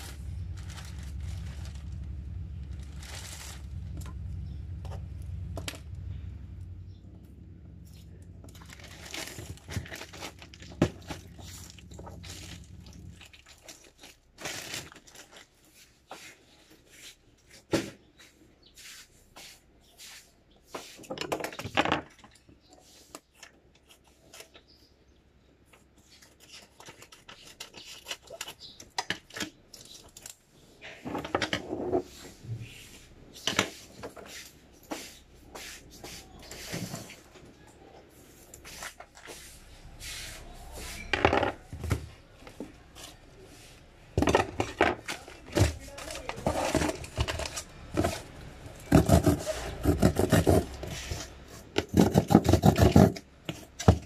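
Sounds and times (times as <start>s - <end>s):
packaging crinkling and tearing: 0.0s - 4.3s, 8.4s - 15.6s
low hum: 0.0s - 13.4s.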